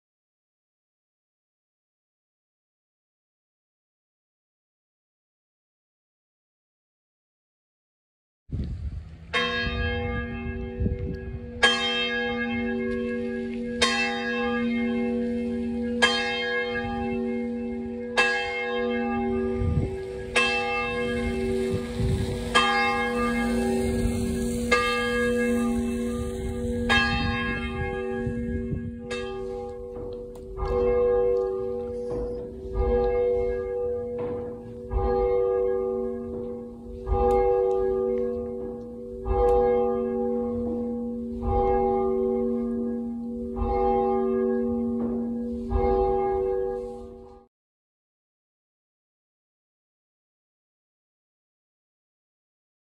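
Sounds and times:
church bell ringing: 9.2s - 47.5s.

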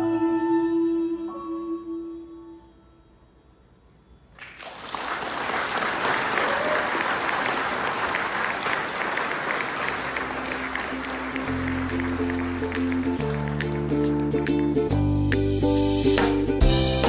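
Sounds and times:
audience applauding: 4.4s - 14.8s.

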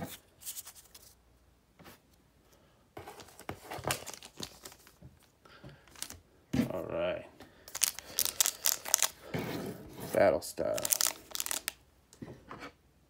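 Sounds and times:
foil wrapper crinkling: 3.8s - 5.3s, 5.9s - 6.2s, 7.7s - 9.2s, 10.6s - 11.8s.

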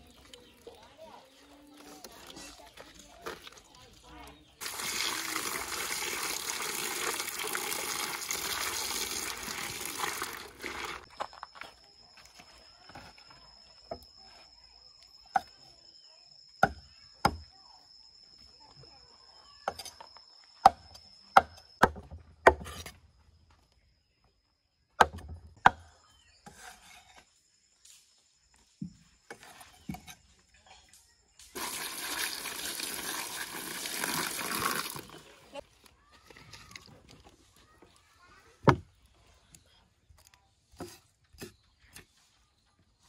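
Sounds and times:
running water pouring: 4.6s - 11.1s, 31.5s - 35.4s.

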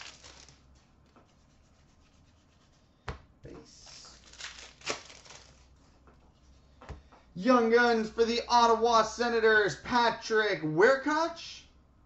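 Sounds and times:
cards sliding and rubbing: 0.0s - 2.8s.

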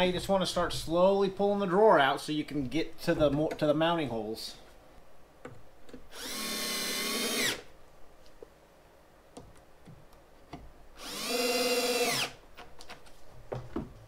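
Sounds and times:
drill driving screws: 6.1s - 7.7s, 11.0s - 12.4s.

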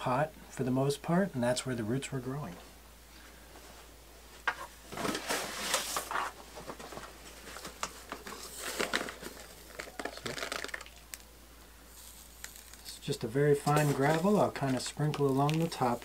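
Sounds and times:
plastic bag rustling: 4.8s - 11.2s, 11.9s - 16.0s
small crackles: 5.0s - 11.3s, 11.9s - 16.0s.

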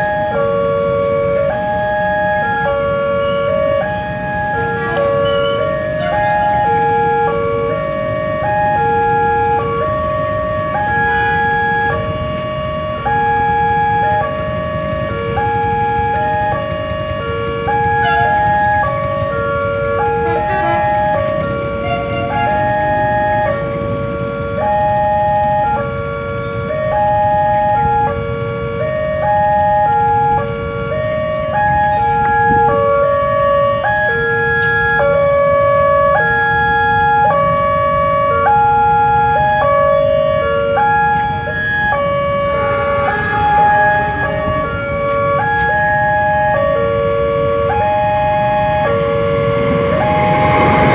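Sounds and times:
level crossing warning alarm: 0.0s - 50.9s
low rumble of road traffic: 0.0s - 50.9s
low rumble: 48.1s - 50.9s.

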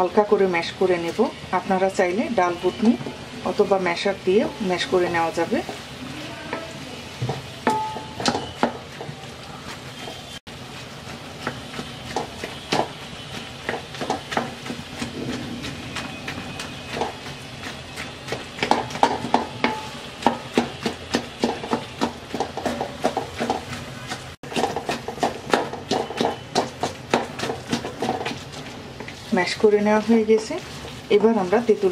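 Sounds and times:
wooden spatula scraping metal pan: 4.8s - 31.9s.

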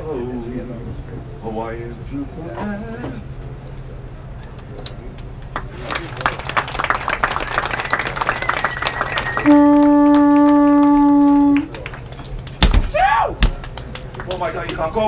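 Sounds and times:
audience clapping: 5.1s - 12.7s, 13.4s - 15.0s
conch shell blast: 9.4s - 11.7s.

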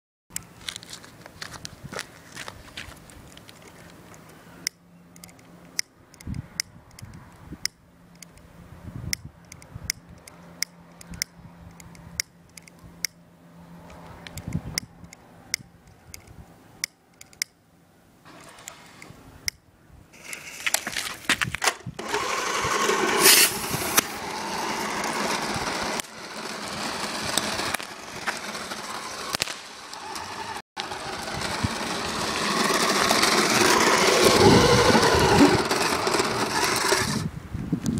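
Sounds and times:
toy car motor whining: 22.0s - 37.3s.

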